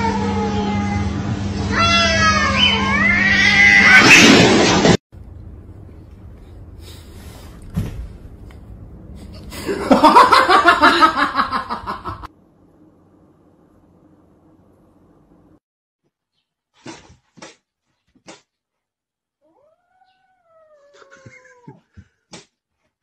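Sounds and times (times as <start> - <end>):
cats caterwauling: 0.0 - 4.2, 19.4 - 21.9
thump: 7.7 - 8.2.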